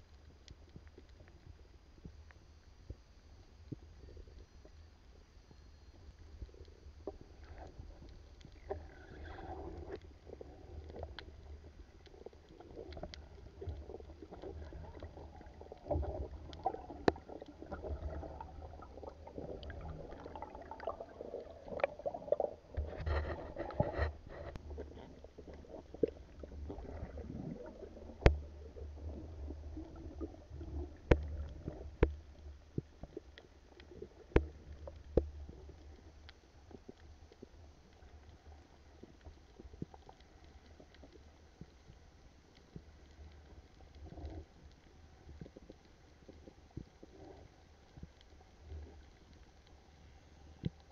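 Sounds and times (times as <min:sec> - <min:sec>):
muffled underwater rumble: 0:00.0 - 0:50.9
bubbling: 0:07.1 - 0:37.0.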